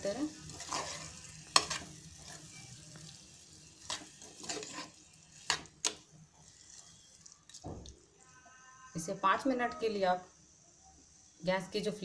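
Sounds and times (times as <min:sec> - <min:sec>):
faint frying sizzle: 0:00.0 - 0:10.1
spatula scraping metal pan: 0:00.5 - 0:02.6, 0:03.8 - 0:05.6.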